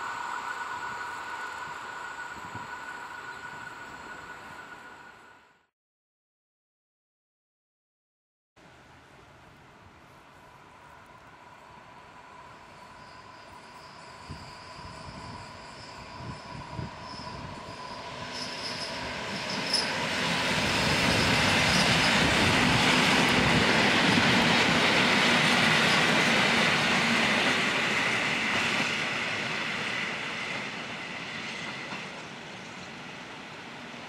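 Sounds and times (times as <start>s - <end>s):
train rolling noise: 0.0s - 5.6s, 9.5s - 34.0s
train high whine: 0.0s - 5.7s, 9.1s - 34.0s.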